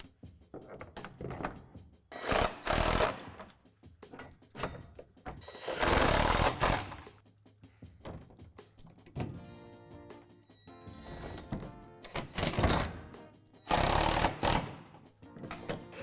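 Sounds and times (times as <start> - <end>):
cordless drill driving fasteners: 5.5 - 7.1, 13.7 - 14.7.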